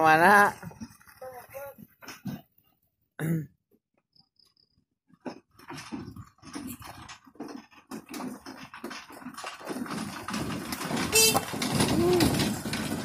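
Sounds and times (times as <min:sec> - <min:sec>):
tyres crunching over rocks: 0:05.1 - 0:13.0
pickup engine labouring: 0:06.7 - 0:13.0.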